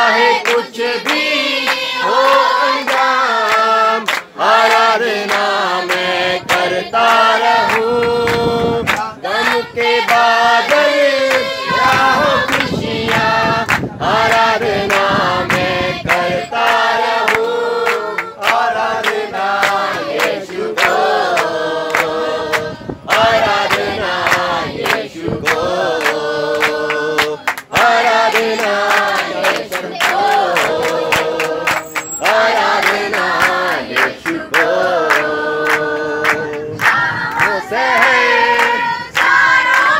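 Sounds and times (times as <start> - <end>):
group singing in unison: 0.0 - 39.9
rhythmic hand clapping: 0.0 - 39.9.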